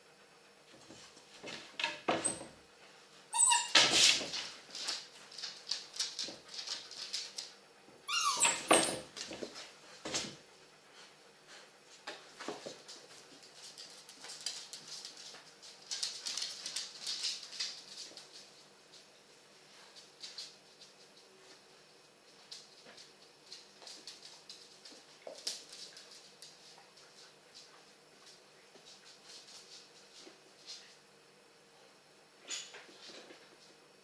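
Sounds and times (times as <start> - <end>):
paw clicks and scuffling: 3.4 - 7.6, 9.1 - 31.0
dog whimpers: 8.1 - 8.7.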